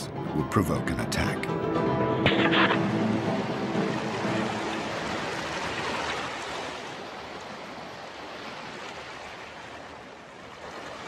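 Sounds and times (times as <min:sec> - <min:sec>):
sea water washing: 0:02.4 - 0:11.0.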